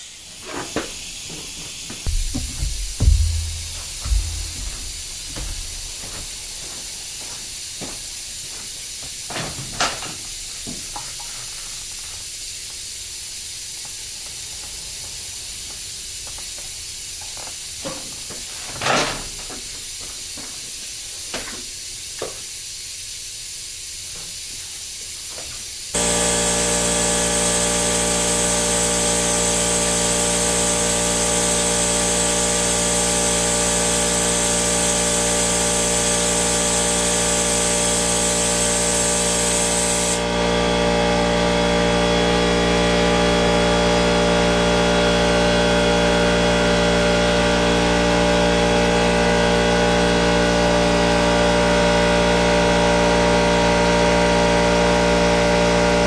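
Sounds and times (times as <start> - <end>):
loud machine hiss and hum: 0.0 - 56.0.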